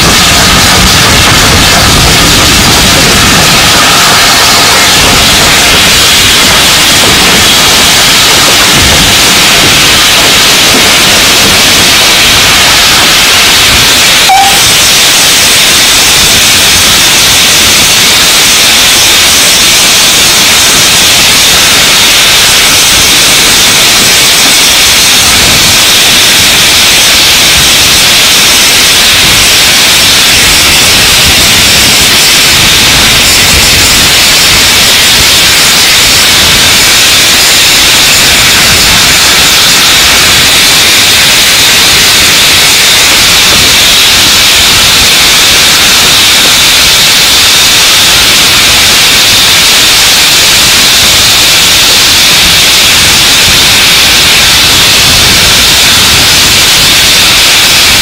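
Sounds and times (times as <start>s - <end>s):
wind hissing over microphone: 0.0s - 18.6s, 19.5s - 42.4s
brief high blip: 9.6s - 15.1s.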